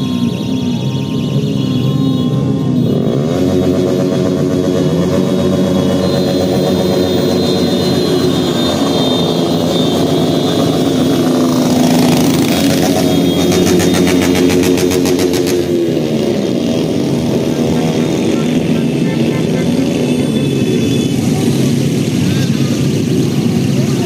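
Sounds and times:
motorcycles riding past: 0.0s - 24.0s.

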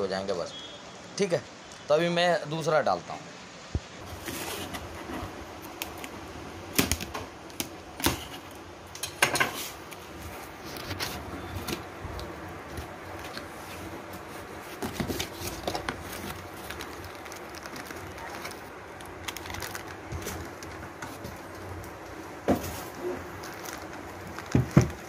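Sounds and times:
cardboard rustling: 9.6s - 25.0s.

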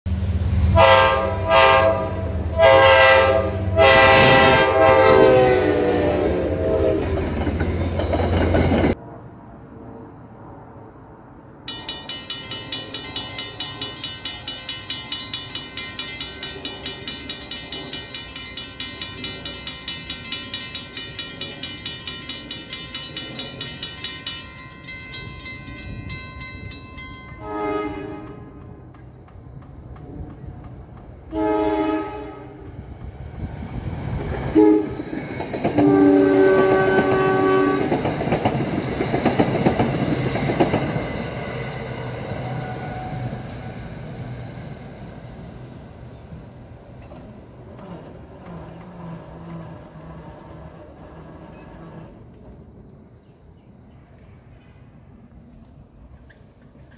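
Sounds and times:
train air horn blasts: 0.7s - 7.3s, 27.4s - 28.6s, 31.3s - 32.7s, 34.5s - 35.0s, 35.8s - 38.0s
distant horn: 0.7s - 7.4s, 27.4s - 28.7s, 31.3s - 32.7s, 34.5s - 35.1s, 35.8s - 38.0s
railroad crossing bell ringing: 2.6s - 9.0s, 11.7s - 33.4s, 34.4s - 50.1s.

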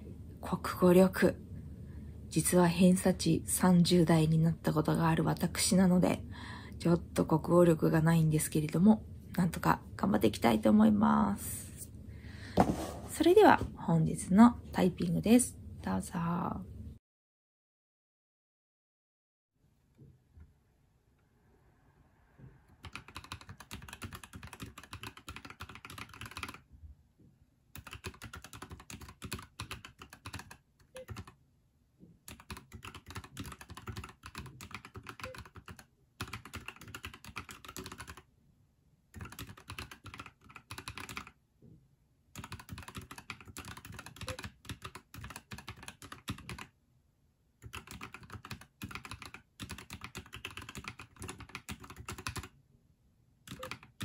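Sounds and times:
mechanical keyboard typing: 22.8s - 26.6s, 27.8s - 31.4s, 32.3s - 38.2s, 39.2s - 41.4s, 42.4s - 46.7s, 47.6s - 52.5s, 53.5s - 54.0s.

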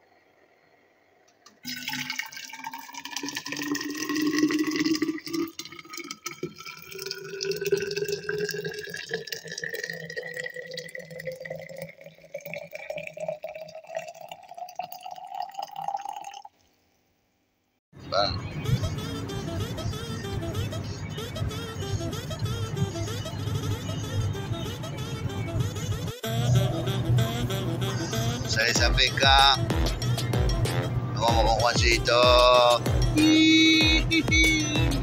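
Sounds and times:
liquid pouring into metal flask: 1.6s - 16.6s.

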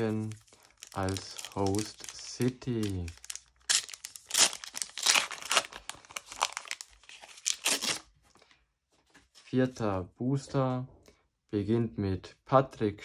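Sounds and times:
wrapper tearing and crinkling: 0.0s - 8.1s.

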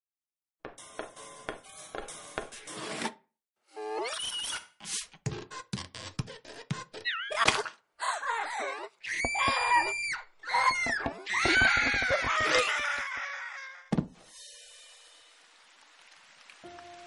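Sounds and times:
people screaming: 8.4s - 13.9s.

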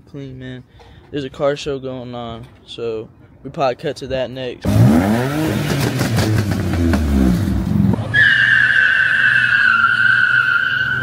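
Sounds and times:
car engine revving: 4.6s - 8.2s
tyres squealing: 8.1s - 11.0s.

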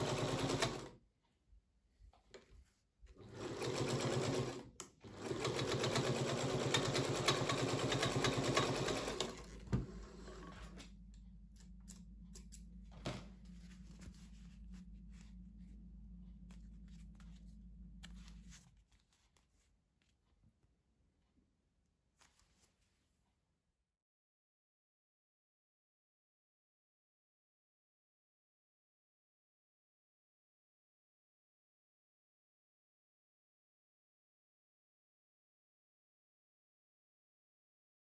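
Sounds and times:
sewing machine clattering: 0.0s - 0.9s, 3.2s - 9.7s
faint steady hum: 9.4s - 19.8s.

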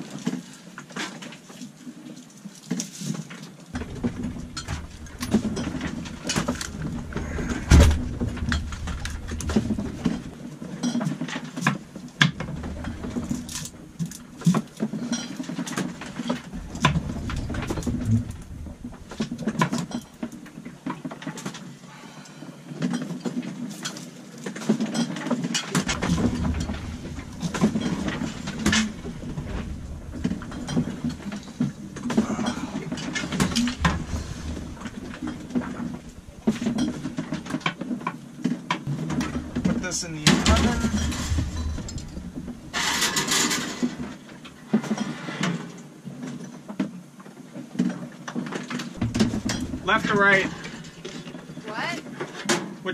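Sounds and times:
dishes and utensils clattering: 14.9s - 18.1s.

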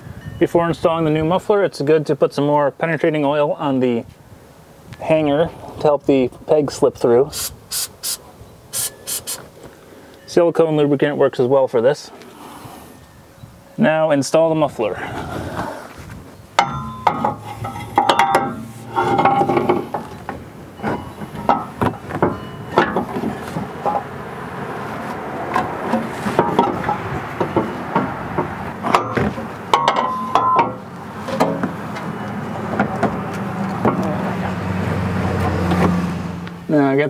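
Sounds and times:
metal knocks and clanks: 16.6s - 24.1s, 25.5s - 32.0s, 33.8s - 34.2s.

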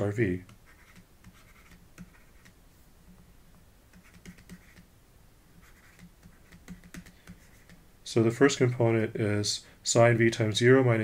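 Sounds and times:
stylus tapping and scratching: 0.0s - 3.3s, 3.9s - 4.9s, 5.5s - 7.8s.

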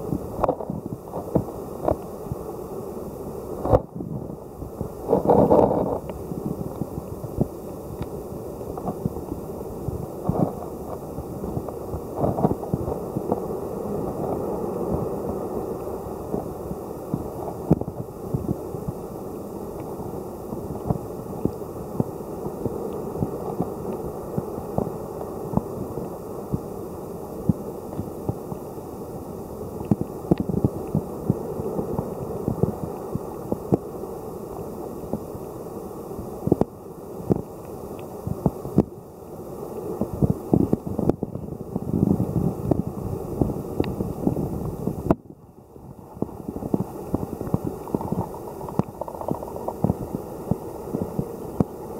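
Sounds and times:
underwater clicks and crackles: 0.3s - 2.1s, 5.1s - 9.4s, 10.2s - 13.5s, 17.1s - 19.0s, 19.7s - 26.6s, 27.4s - 28.6s, 29.8s - 33.9s, 42.6s - 45.2s, 45.9s - 51.8s
underwater rush of water: 45.8s - 51.9s.

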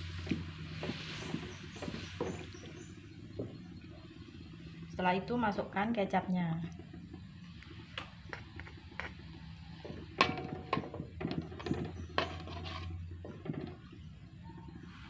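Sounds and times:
low steady hum: 0.0s - 15.0s
metal spatula scraping metal pot: 10.2s - 13.7s.

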